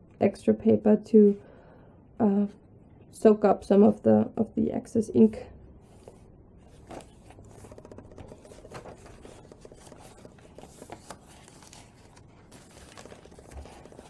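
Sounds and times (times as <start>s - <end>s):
paper pages rustling: 5.8s - 14.0s
soft paper ticks: 6.8s - 14.0s.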